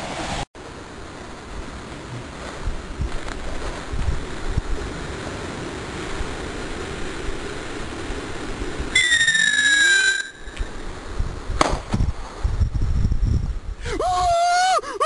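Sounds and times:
steady rushing noise: 0.0s - 13.9s
falling missile whistle: 8.9s - 10.7s
sharp crack with low rumbling: 11.5s - 12.2s.

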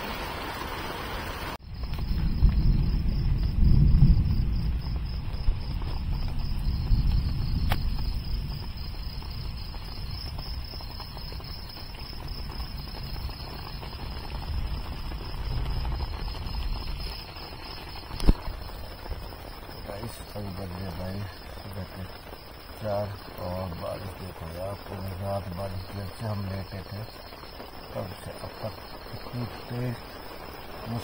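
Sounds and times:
night insects trilling: 0.0s - 31.0s.

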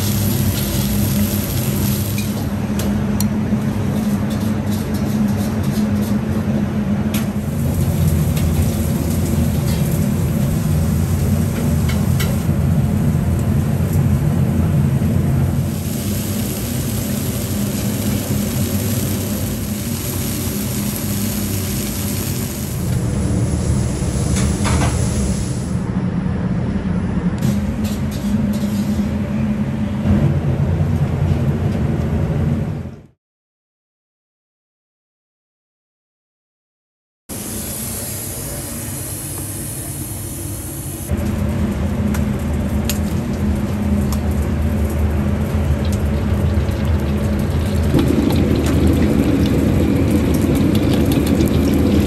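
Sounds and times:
steak sizzling on a griddle: 0.0s - 2.2s, 15.7s - 22.8s
kitchen equipment drone: 0.0s - 33.1s, 37.3s - 52.0s.

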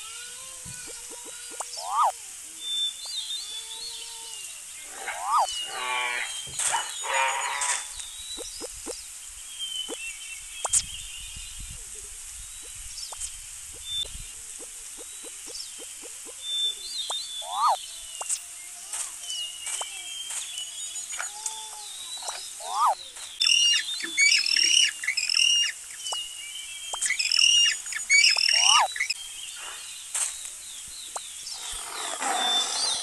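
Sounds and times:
songbirds chirping: 0.0s - 33.0s
quick repeated bird chirps: 0.8s - 2.1s, 5.0s - 5.6s, 8.2s - 9.0s, 10.6s - 10.9s, 12.6s - 16.4s, 17.0s - 18.4s, 22.2s - 26.3s, 26.9s - 29.2s
short rising bird call: 1.2s - 2.1s, 5.0s - 5.6s.

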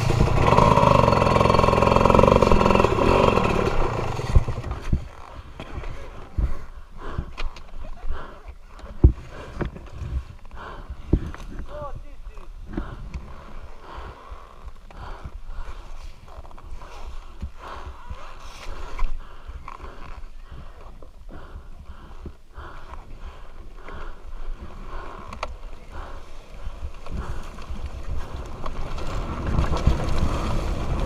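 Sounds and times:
dirt bike engine revving: 0.0s - 4.9s
wind rumble on microphone: 26.7s - 31.0s.

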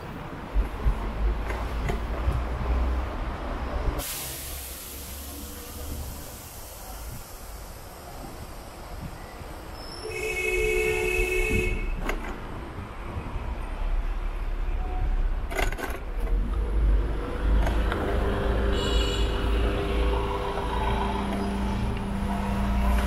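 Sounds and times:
street traffic rumble: 0.0s - 23.0s
vehicle horn: 10.0s - 12.0s, 18.6s - 19.8s.

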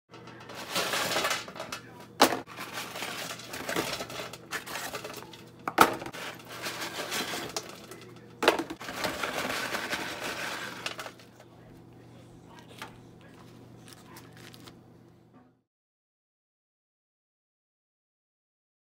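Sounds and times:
fries scraping on metal pan: 0.2s - 11.3s
paper carton rustling: 0.4s - 11.2s, 13.8s - 14.8s.

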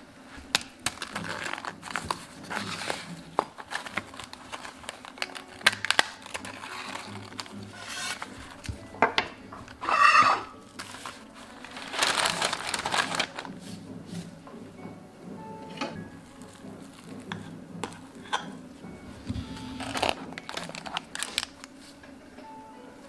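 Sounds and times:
crepe crackling: 0.2s - 14.3s, 16.2s - 22.1s
paper wrapper rustling: 0.3s - 8.9s, 9.6s - 14.3s, 19.3s - 22.0s.

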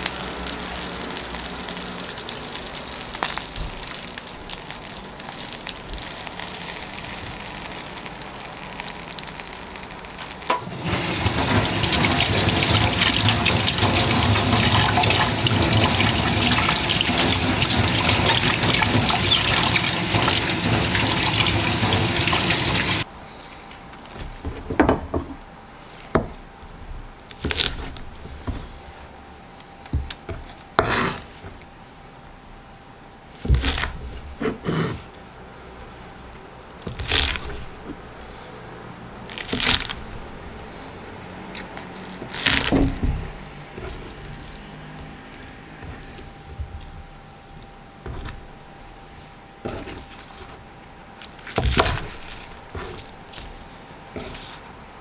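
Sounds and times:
skewers sizzling over charcoal: 0.0s - 23.1s, 36.8s - 47.2s.

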